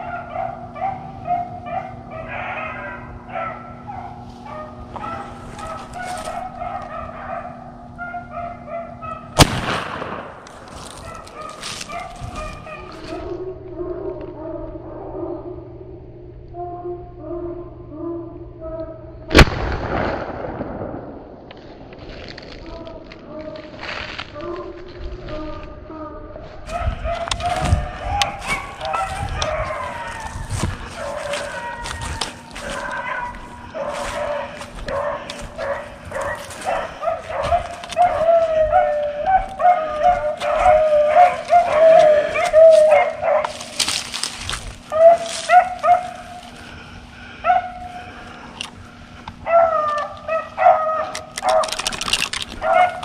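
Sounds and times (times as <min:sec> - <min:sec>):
beagles baying: 0:00.0 - 0:15.7, 0:22.7 - 0:53.0
brush and leaves rustling: 0:04.1 - 0:07.0, 0:10.5 - 0:13.4, 0:22.0 - 0:25.8, 0:26.5 - 0:47.2.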